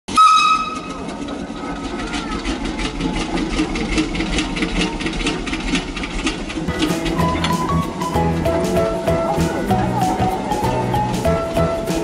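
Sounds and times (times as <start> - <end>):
short whistle-like tone: 0.1 - 0.9
machine rhythmic clatter: 0.1 - 12.0.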